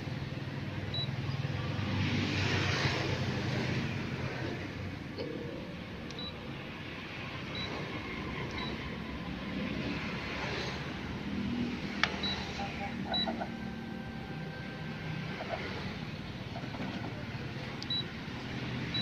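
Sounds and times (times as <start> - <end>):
copier scanning whine: 7.2 - 9.5, 11.8 - 19.0
short high beeps: 12.2 - 15.0.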